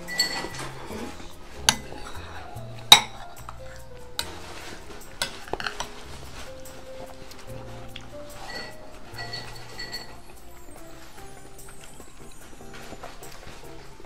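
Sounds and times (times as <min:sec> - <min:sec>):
metal spoon scraping bowl: 0:08.4 - 0:10.2.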